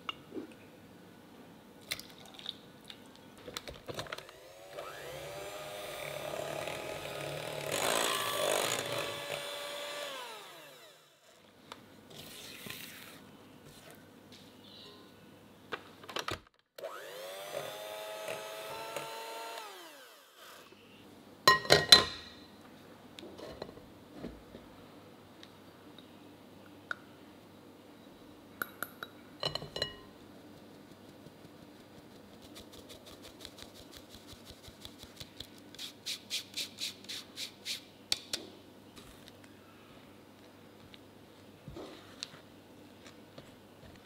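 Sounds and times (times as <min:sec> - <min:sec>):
electric hand mixer whine: 0:04.3 - 0:11.2, 0:16.8 - 0:20.7
clinks on glass bowl: 0:29.4 - 0:30.1.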